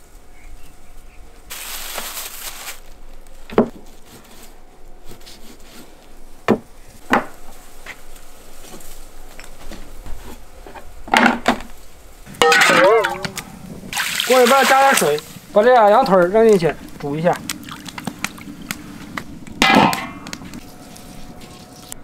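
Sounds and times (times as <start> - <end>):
plastic bag rustling: 1.5 - 6.0.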